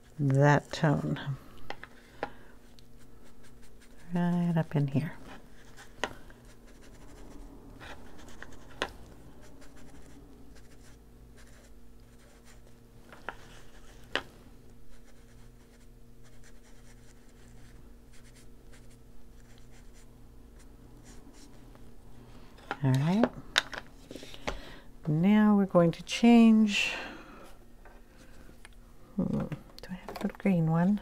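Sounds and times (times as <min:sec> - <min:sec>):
blending tool rubbing on paper: 0:03.0 - 0:14.2.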